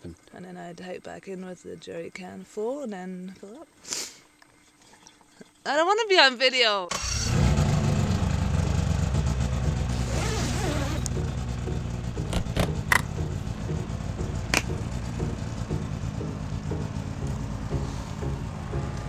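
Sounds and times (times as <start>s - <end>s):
deep low drone: 7.6s - 19.0s.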